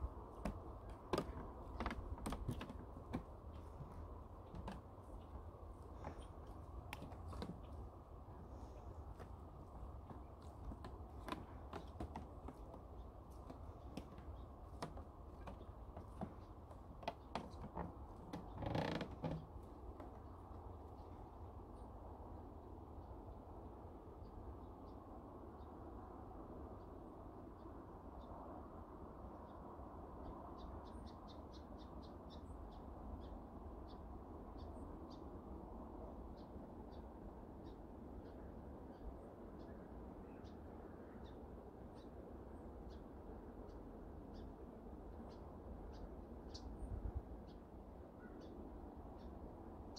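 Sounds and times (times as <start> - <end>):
faint breeze: 0.0 - 49.9
footsteps on creaking wooden planks: 0.3 - 7.9, 9.1 - 20.2
long wooden board creak: 0.4 - 7.8, 10.0 - 20.2.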